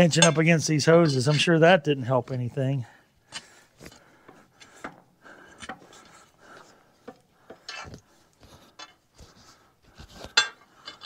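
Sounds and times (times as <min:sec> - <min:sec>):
pry bar scraping dirt: 0:07.5 - 0:11.0.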